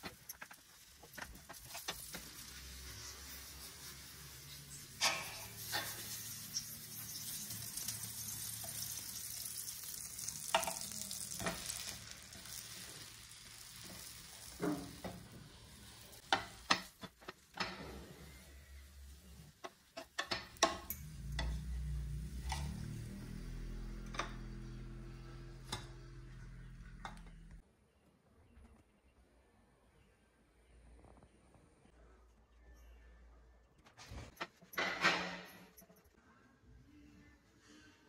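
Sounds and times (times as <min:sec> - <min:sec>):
wooden spatula scraping a pan: 0:00.0 - 0:25.5
butter sizzling on a pan: 0:00.0 - 0:27.2.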